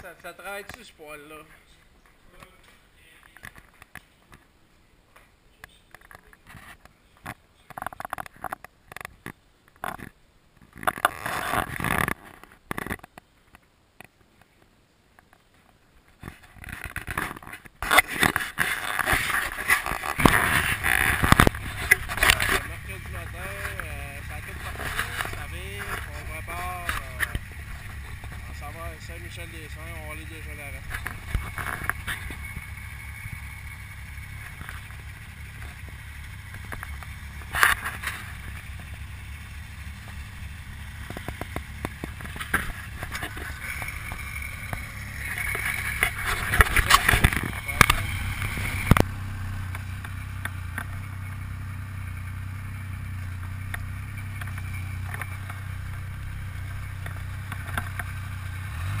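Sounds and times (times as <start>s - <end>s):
snowmobile engine running: 19.0s - 59.0s.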